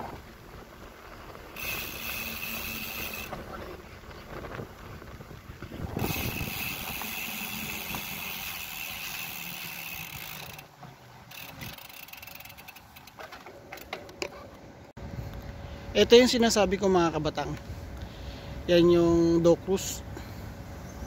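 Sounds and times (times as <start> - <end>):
wind noise: 0.0 - 2.1, 2.7 - 9.0
bicycle rolling over paving stones: 0.0 - 14.5
bike clicking and rattling: 0.0 - 14.9
thin steady high whine: 1.1 - 4.0, 5.6 - 13.2.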